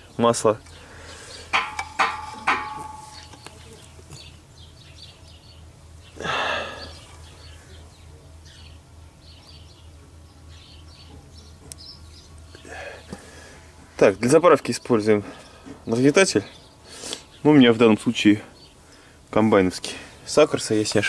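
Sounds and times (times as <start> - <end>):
small birds chirping: 0.0 - 21.0
metal clanks ringing: 1.5 - 3.7.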